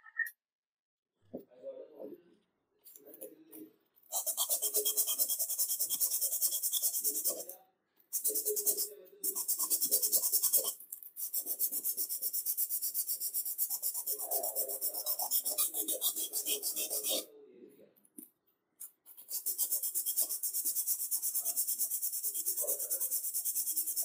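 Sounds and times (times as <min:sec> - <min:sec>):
sandpaper rubbing on wood: 0:04.1 - 0:07.5, 0:08.2 - 0:17.2, 0:19.2 - 0:24.0.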